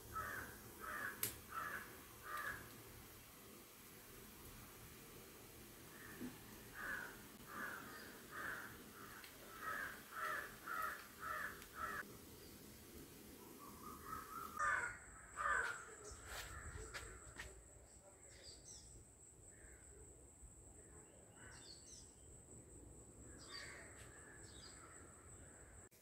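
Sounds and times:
crow cawing: 0.1 - 2.8, 5.9 - 12.0, 13.8 - 17.1.

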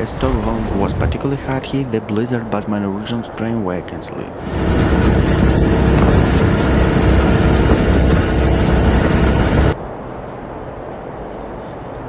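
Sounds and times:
rushing snow from chute: 0.0 - 2.0, 4.4 - 9.8
blizzard wind rushing: 0.0 - 3.4, 4.3 - 12.0
snowblower engine rumble: 4.4 - 9.8.

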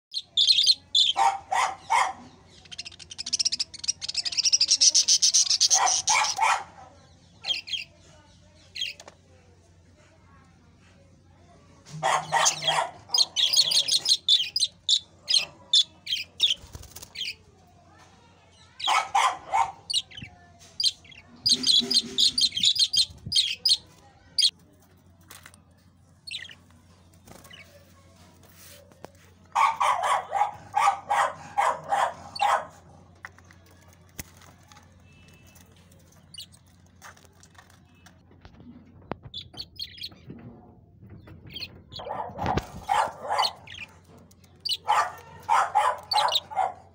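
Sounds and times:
budgerigars chirping: 0.1 - 6.5, 12.0 - 16.6, 18.8 - 23.8, 26.3 - 26.6, 41.5 - 46.7
wings fluttering: 16.4 - 17.4, 26.3 - 38.6, 41.4 - 46.7.

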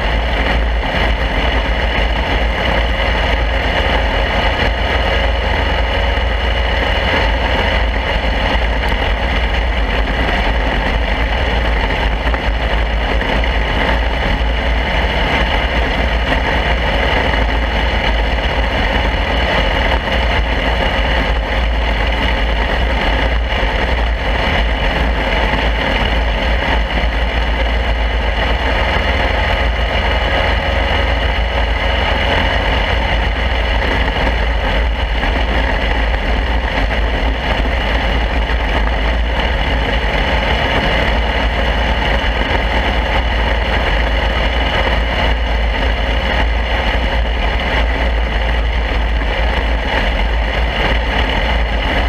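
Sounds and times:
deep rumble: 0.0 - 52.0
small race car engine running: 0.0 - 52.0.

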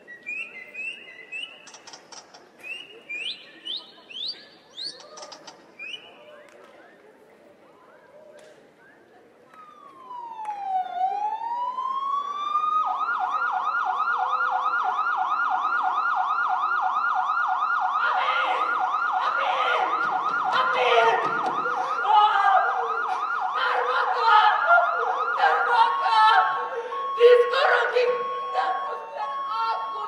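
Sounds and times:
electronic siren wailing and yelping: 10.1 - 30.0.

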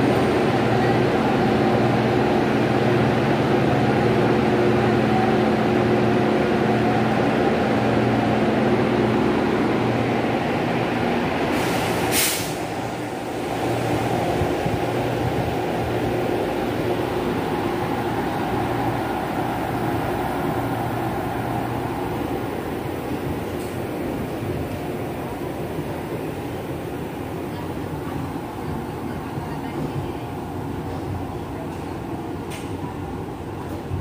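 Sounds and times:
electric locomotive motors humming: 0.0 - 34.0
air hiss: 11.5 - 13.7.

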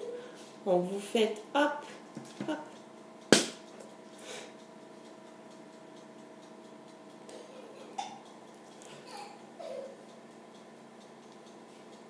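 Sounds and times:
faint steady hum: 0.0 - 12.0
faint soft ticks: 10.1 - 12.0.

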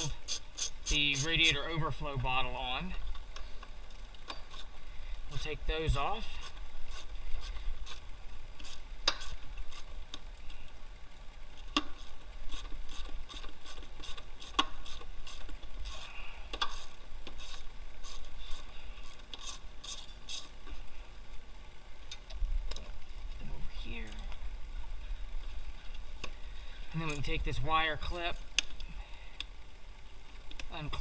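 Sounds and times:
steady low rumble: 20.7 - 31.0.

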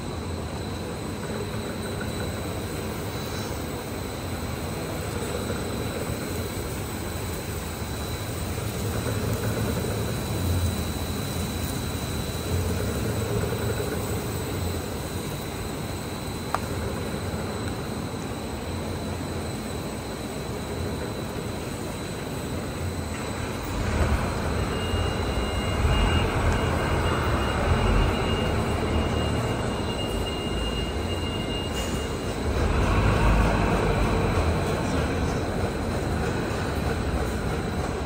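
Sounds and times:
thin high whine: 0.0 - 36.6
laminating machine rumbling: 4.5 - 31.2.

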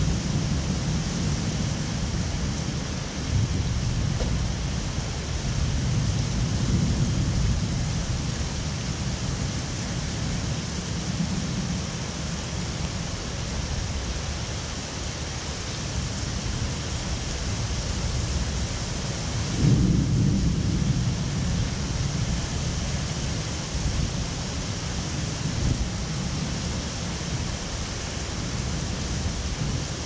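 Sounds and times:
rolling thunder: 0.0 - 13.1, 19.3 - 26.8
steady rain hiss: 0.0 - 30.0.

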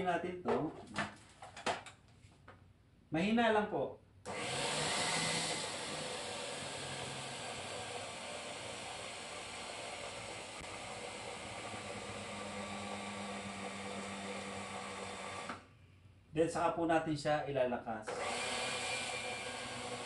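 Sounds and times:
faint motor hum: 4.3 - 15.6
food processor running: 4.3 - 15.6, 18.1 - 20.0.

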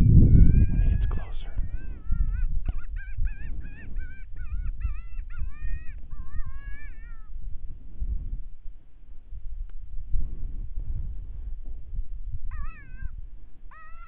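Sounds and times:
steady low rumble: 0.0 - 13.8
high-pitched animal distress cries: 0.2 - 7.4, 12.5 - 14.0.

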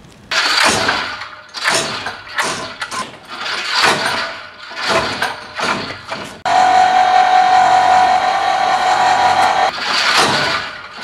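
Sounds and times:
weight falling with rushing clatter: 0.3 - 6.5, 9.0 - 11.0.

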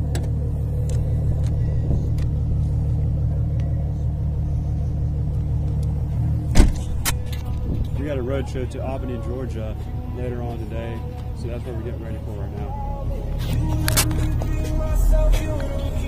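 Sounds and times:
car engine idling: 0.0 - 16.0
sharp thump: 6.5 - 7.8.

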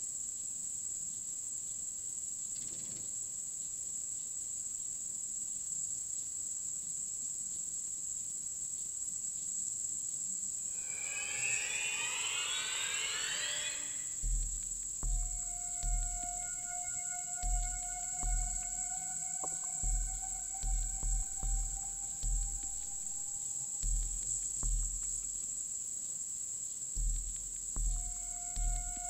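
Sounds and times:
crickets trilling: 10.7 - 29.0
overlapping sliding tones: 10.8 - 23.5.

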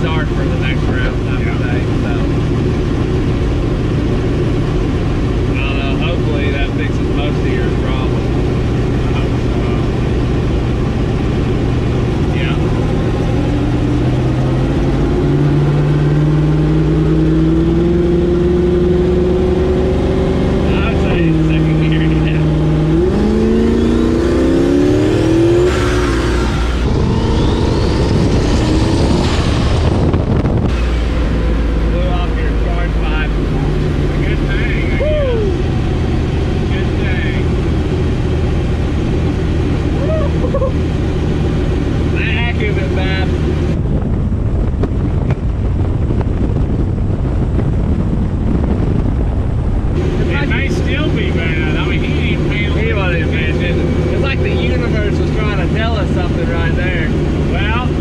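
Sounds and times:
engine accelerating hard: 0.0 - 58.0
wind buffeting microphone: 22.7 - 58.0.

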